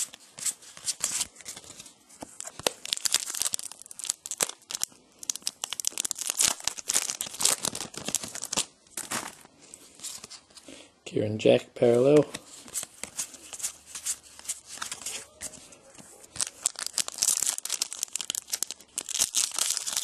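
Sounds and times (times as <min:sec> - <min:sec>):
wrapper tearing and crinkling: 0:02.4 - 0:09.5, 0:16.2 - 0:20.0.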